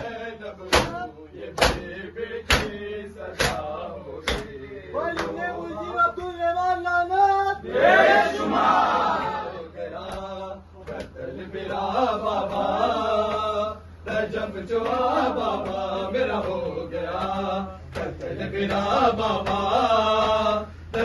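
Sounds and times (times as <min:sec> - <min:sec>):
men chanting a lament: 0:00.0 - 0:21.0
hands slapping bare chests: 0:02.5 - 0:02.8.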